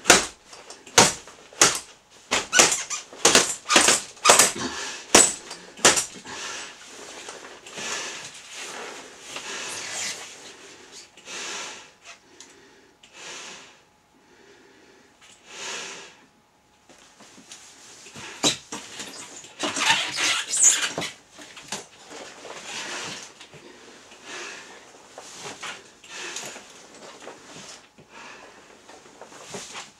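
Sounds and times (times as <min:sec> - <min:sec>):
rubber gear squeaking and creaking: 0:02.3 - 0:04.6, 0:09.6 - 0:10.2, 0:18.4 - 0:21.2
heavy breaths through gas mask: 0:04.5 - 0:16.3, 0:22.5 - 0:29.9.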